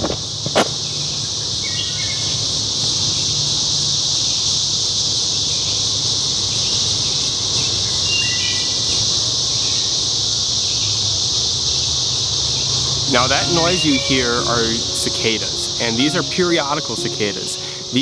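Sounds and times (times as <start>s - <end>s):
cicadas droning: 0.0s - 18.0s.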